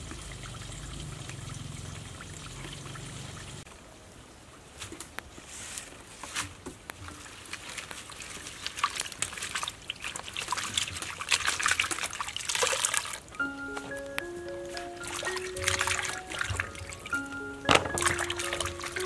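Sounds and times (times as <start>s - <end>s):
water trickling and dripping: 0.0s - 3.7s, 6.9s - 19.0s
hands splashing vegetables in water: 7.2s - 13.4s, 14.2s - 19.0s
background music: 13.4s - 19.0s.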